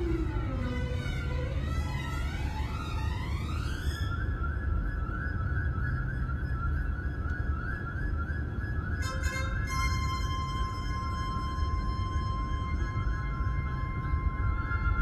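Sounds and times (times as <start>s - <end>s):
low road rumble inside car: 0.0s - 3.8s
steady high-pitched tone: 0.0s - 15.0s.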